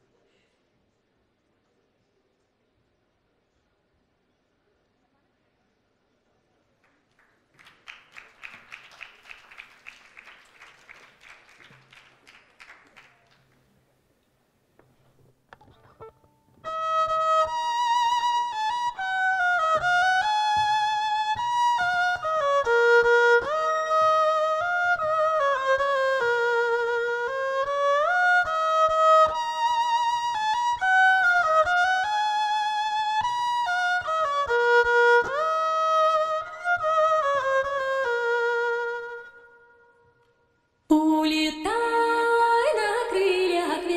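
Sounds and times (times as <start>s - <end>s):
violin playing slow melody: 16.0s - 40.0s.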